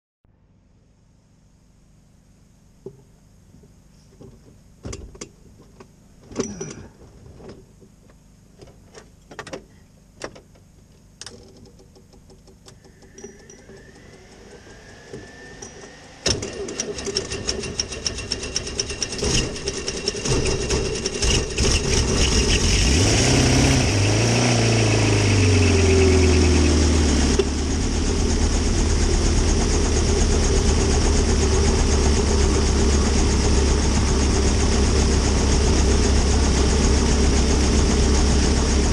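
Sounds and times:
helicopter engine running: 0:23.9 - 0:38.9.

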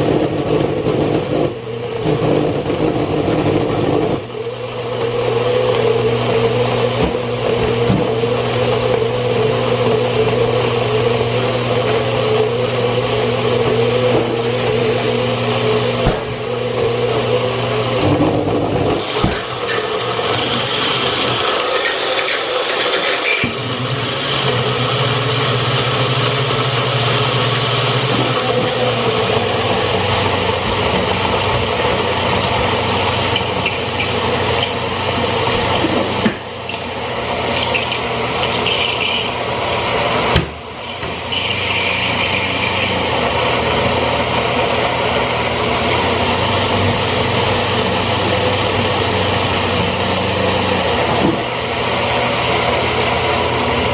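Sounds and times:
blender motor running: 0:00.0 - 0:53.9.

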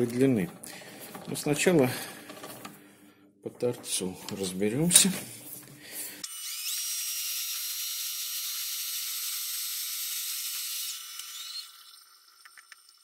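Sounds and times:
high-pitched lathe whir: 0:06.2 - 0:11.8.

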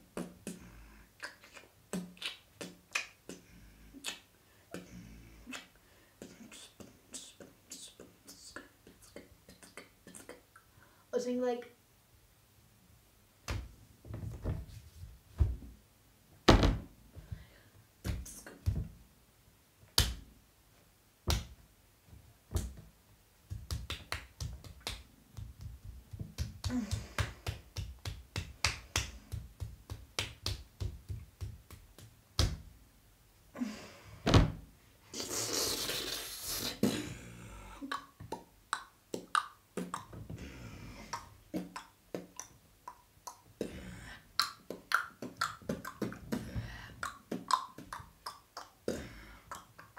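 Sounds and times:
mouth and hand percussion: 0:23.4 - 0:32.7.

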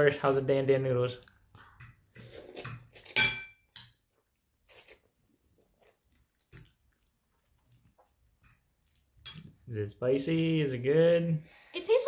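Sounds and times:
faint chewing and biting: 0:03.8 - 0:09.6.

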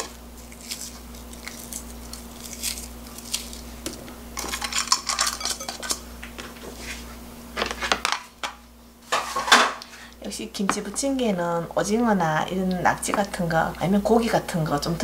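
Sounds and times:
frozen pieces clicking into glass bowl: 0:04.4 - 0:06.0.

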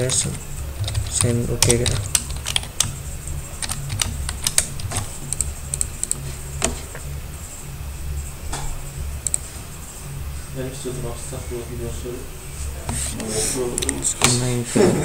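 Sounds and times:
keyboard typing: 0:00.0 - 0:06.8, 0:09.2 - 0:09.5, 0:12.9 - 0:14.6
steady low hum: 0:00.0 - 0:15.0.

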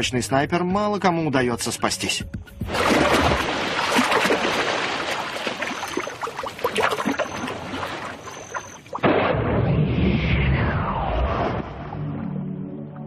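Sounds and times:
water splashing: 0:02.7 - 0:09.4.

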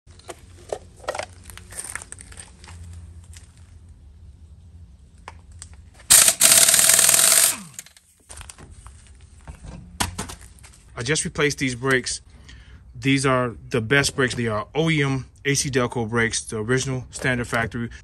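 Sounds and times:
motor winding down whine: 0:06.1 - 0:07.9
impact wrench hammering: 0:06.1 - 0:08.0.

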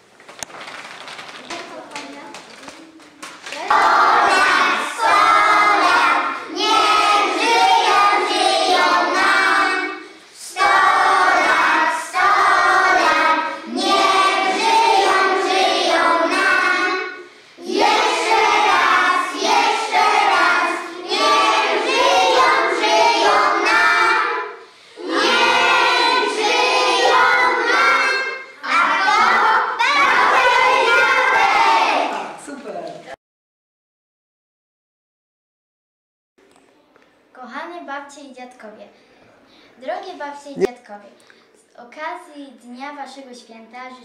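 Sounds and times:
children singing in unison: 0:03.6 - 0:32.2.

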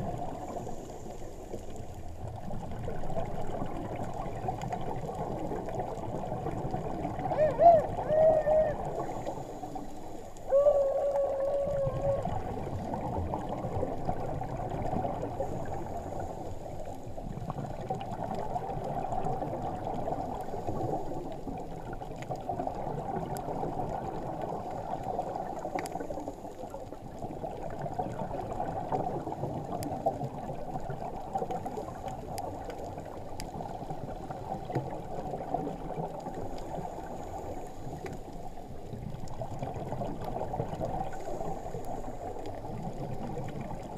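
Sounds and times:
underwater water noise: 0:00.0 - 0:43.9.

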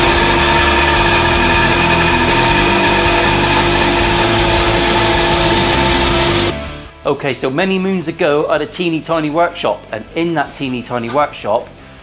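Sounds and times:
bandsaw cutting wood: 0:00.0 - 0:06.5.

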